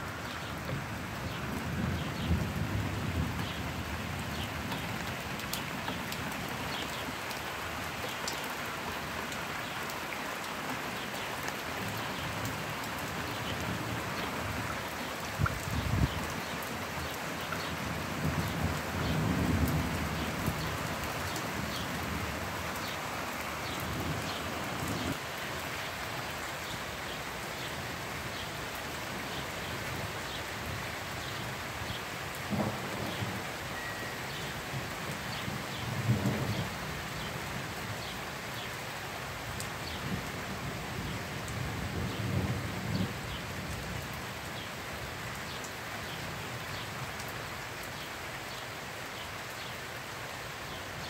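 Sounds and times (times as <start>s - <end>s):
steady rain falling: 0.0s - 51.0s.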